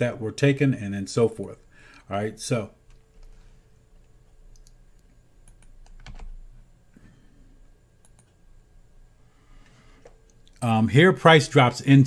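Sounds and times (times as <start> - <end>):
faint hum: 0.0 - 12.0
keyboard clicks: 4.5 - 6.4, 8.0 - 8.4.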